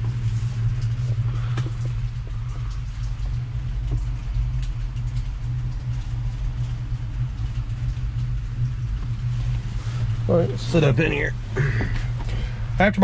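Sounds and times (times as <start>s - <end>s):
rain on an awning: 0.0s - 13.0s.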